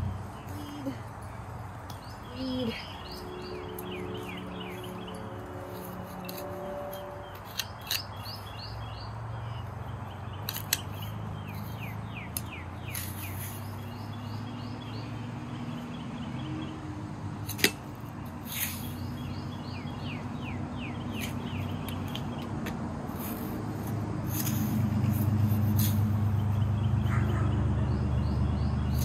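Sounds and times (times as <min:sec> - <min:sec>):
bird chirping: 0:00.0 - 0:16.8, 0:18.6 - 0:22.5
hand shovel digging soil: 0:05.6 - 0:08.4, 0:10.4 - 0:13.9, 0:18.4 - 0:19.1, 0:21.1 - 0:22.2, 0:23.1 - 0:26.3.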